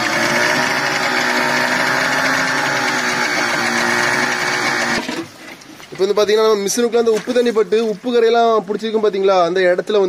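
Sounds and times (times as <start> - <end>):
outboard motor running: 0.0 - 5.4.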